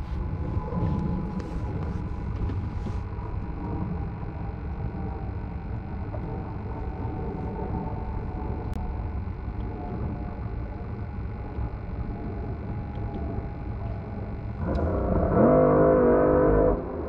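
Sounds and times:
faint steady hum: 0.0 - 17.0
wind rumbling on microphone: 0.0 - 17.0.

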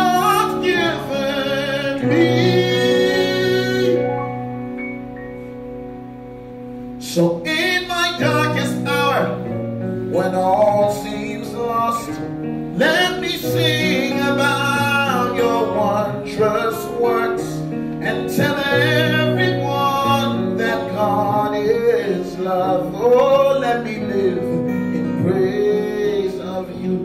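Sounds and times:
man singing wordless phrases: 0.0 - 4.2, 7.0 - 9.5, 10.1 - 27.0
sustained keyboard chords: 0.0 - 27.0.

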